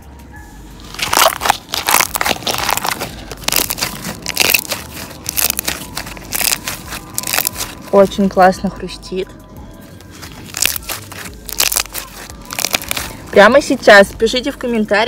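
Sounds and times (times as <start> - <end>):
foam slime crackling when squeezed: 0.8 - 8.0, 10.1 - 13.5.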